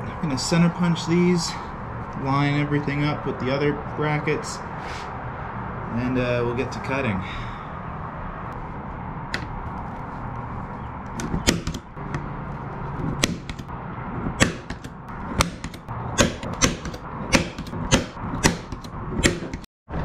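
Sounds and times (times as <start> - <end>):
center punch snapping on metal: 14.4 - 19.6.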